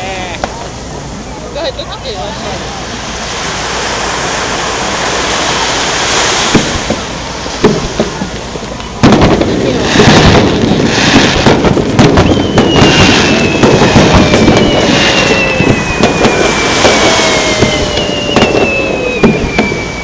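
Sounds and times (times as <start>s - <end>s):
fireworks bangs and crackling: 0.0s - 0.8s, 1.5s - 20.0s
long falling tones: 12.2s - 20.0s.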